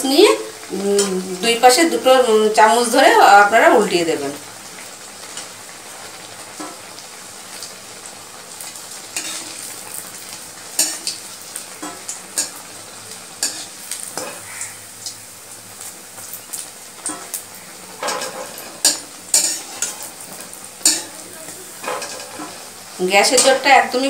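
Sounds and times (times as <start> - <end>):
oil sizzling: 0.0 - 24.0
metal spatula scraping pan: 9.2 - 9.6, 17.9 - 21.2, 21.8 - 22.7.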